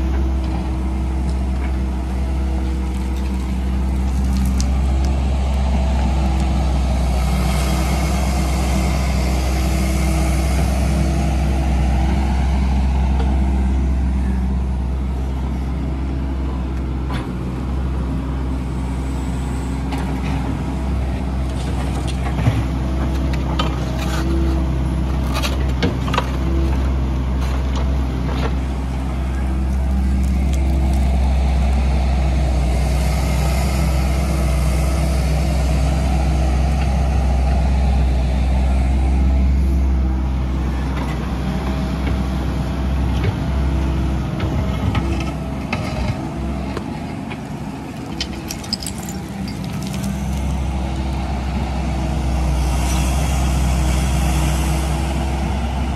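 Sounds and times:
excavator diesel engine running: 0.0 - 55.9
sharp clanks and knocks: 47.9 - 50.6.

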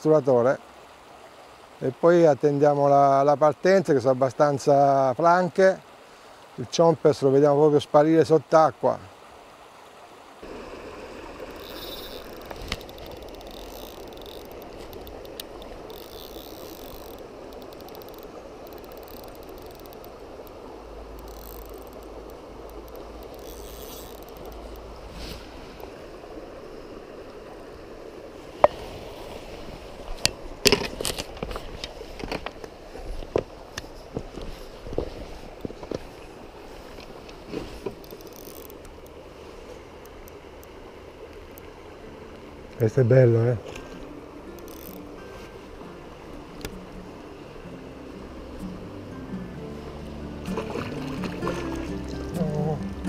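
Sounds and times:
river water flowing: 0.0 - 53.0.

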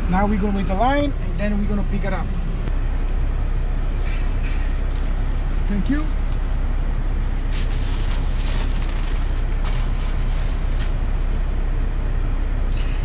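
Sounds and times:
car engine idling: 0.0 - 13.0
soft rustles: 7.4 - 11.3.

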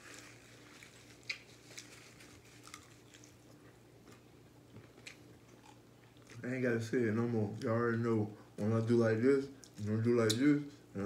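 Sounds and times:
low steady hum: 0.0 - 11.0
chewing mouth clicks and smacks: 1.2 - 1.5.

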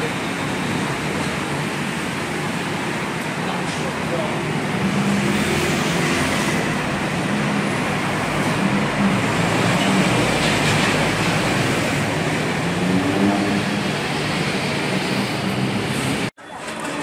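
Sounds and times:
car and motorbike engines: 0.0 - 16.3
tyres on road: 0.0 - 17.0.

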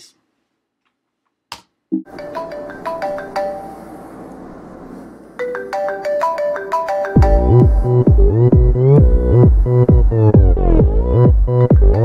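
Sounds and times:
phone alarm melody: 5.4 - 9.0.

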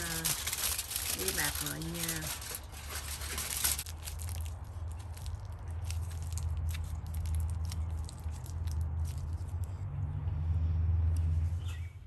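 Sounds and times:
plastic wrap crinkling: 0.0 - 9.5.

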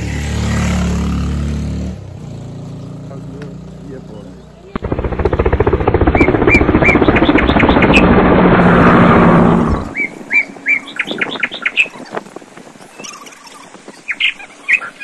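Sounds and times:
loud rapidly pulsing noise: 4.7 - 10.0
bird chirping: 9.6 - 12.2, 12.8 - 15.0.

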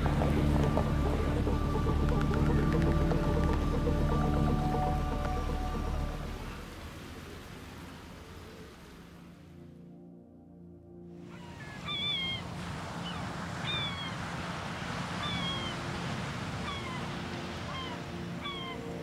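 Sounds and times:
gulls mewing: 11.2 - 19.0
sea surf washing on rocks: 11.5 - 19.0.

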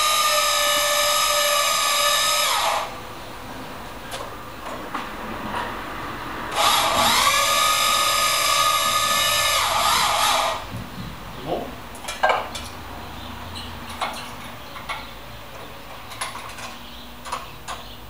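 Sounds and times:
electric drill whining: 0.0 - 3.0, 6.5 - 10.6.

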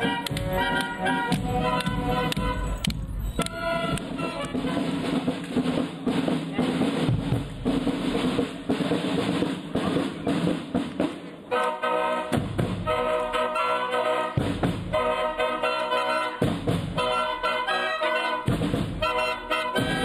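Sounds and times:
horns playing sustained chords: 0.0 - 2.8, 11.5 - 16.4, 17.0 - 20.0
marching band drumming: 0.0 - 11.4, 12.2 - 13.6, 14.2 - 20.0.

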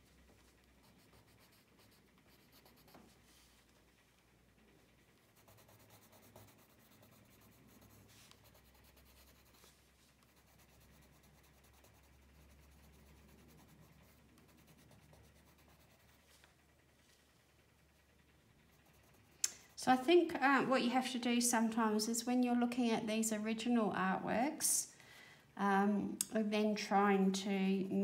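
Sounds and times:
pencil scratching on paper: 0.8 - 3.2, 5.4 - 16.3.

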